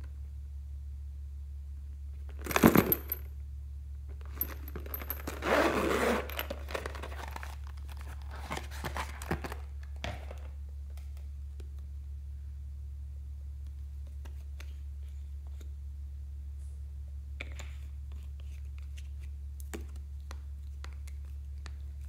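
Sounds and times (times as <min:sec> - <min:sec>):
metallic clink and rustle: 0:04.2 - 0:07.5
zipper drawn open: 0:04.6 - 0:07.2.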